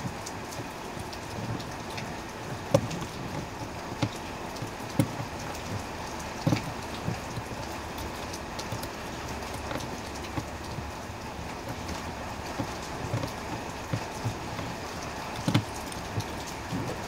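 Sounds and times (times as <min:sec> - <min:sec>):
light knocks and clicks: 0:00.0 - 0:17.0.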